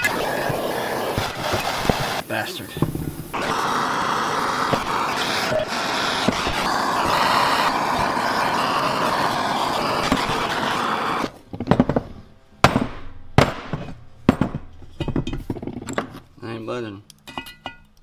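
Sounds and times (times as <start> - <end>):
gas torch hissing: 0.0 - 11.3.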